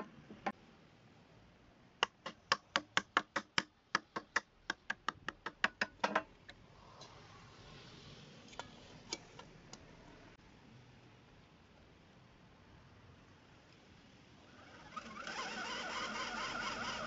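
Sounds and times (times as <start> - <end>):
hammer tapping plastic fan: 2.0 - 6.3.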